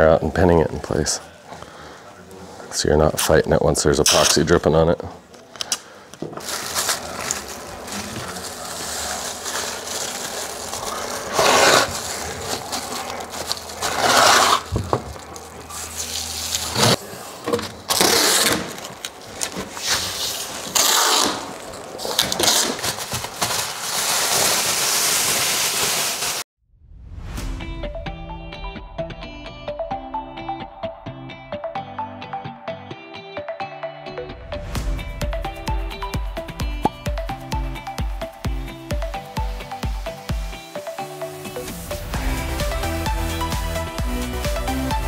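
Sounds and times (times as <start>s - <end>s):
plastic sheeting rustling: 6.4s - 17.0s, 17.9s - 26.4s.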